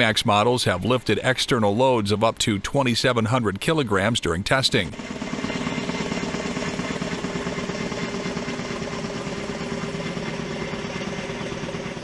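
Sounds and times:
helicopter rotor beat: 0:00.0 - 0:02.6, 0:03.2 - 0:12.0
helicopter engine hum: 0:04.4 - 0:12.0.

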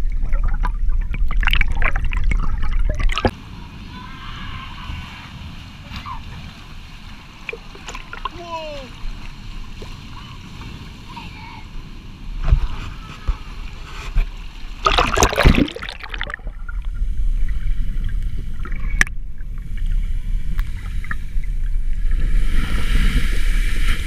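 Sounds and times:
rush of surging white water: 0:03.3 - 0:14.1
seawater sloshing and splashing: 0:04.9 - 0:11.2, 0:12.4 - 0:24.0.

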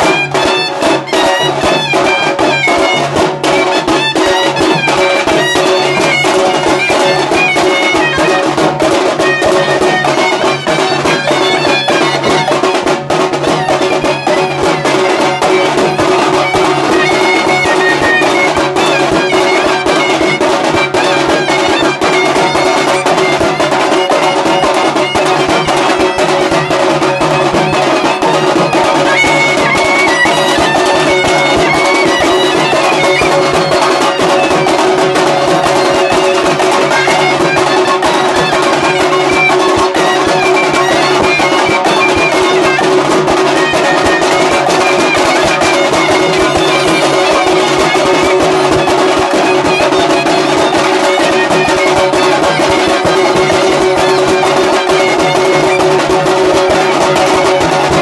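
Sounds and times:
fast drumming: 0:00.0 - 0:58.0.

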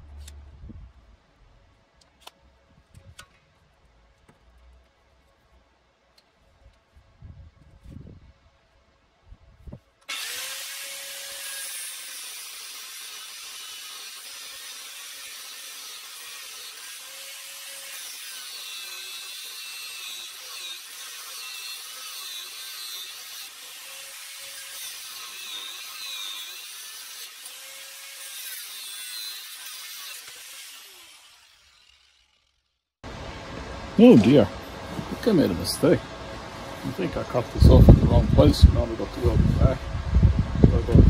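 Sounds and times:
angle grinder cutting steel: 0:10.0 - 0:32.8.

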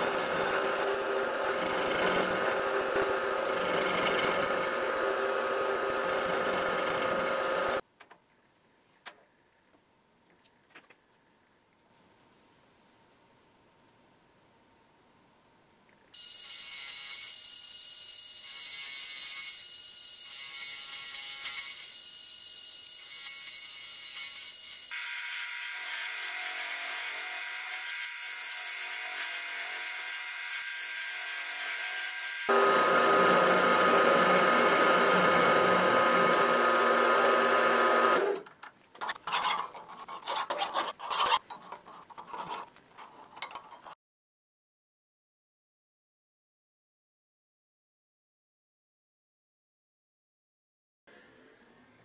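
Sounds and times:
milling machine cutting whine: 0:32.5 - 0:38.3
hand file scraping metal: 0:39.0 - 0:44.0.

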